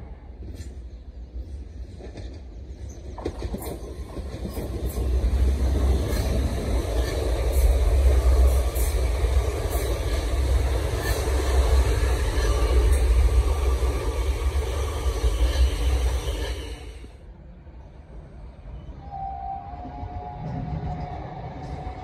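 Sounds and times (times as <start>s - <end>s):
train rumbling past: 0.0s - 22.0s.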